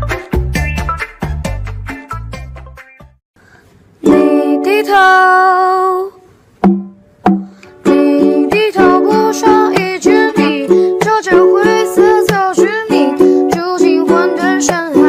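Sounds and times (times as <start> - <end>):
background music tune: 4.0 - 5.0
strummed ukulele song with singing: 4.0 - 6.0, 6.6 - 15.0.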